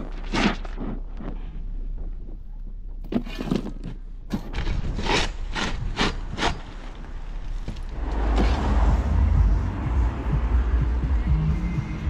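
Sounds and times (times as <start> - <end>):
shovel scraping crushed stone: 3.1 - 7.8
rushing noise with low rumble: 3.9 - 12.0.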